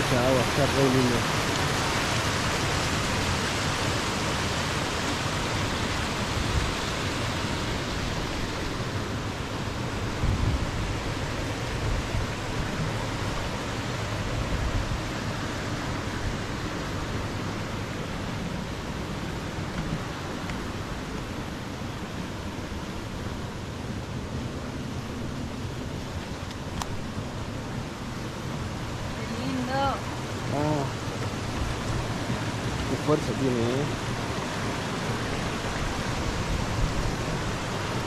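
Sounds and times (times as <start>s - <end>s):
water rushing down cascades: 0.0s - 38.0s.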